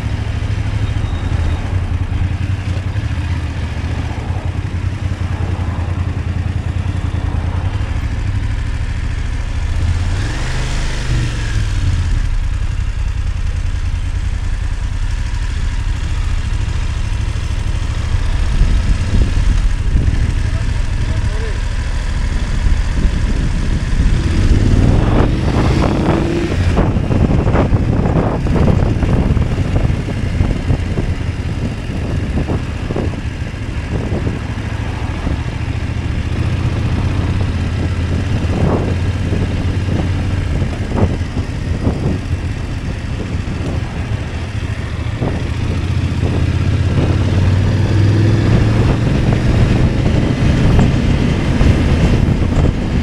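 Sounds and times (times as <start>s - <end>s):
motorcycle engine running: 0.0s - 53.0s
wind noise: 15.0s - 21.1s, 21.7s - 53.0s.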